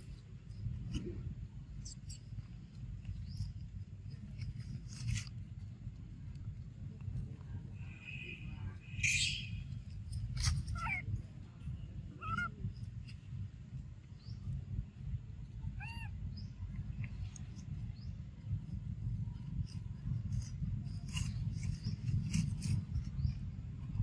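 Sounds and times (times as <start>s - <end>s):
baby monkey squeaky calls: 8.9s - 9.8s, 10.4s - 11.0s, 12.2s - 12.6s, 15.8s - 16.4s.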